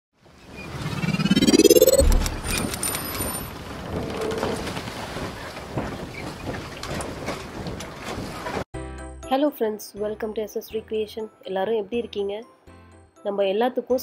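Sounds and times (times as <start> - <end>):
rising whoosh: 0.6 - 3.0.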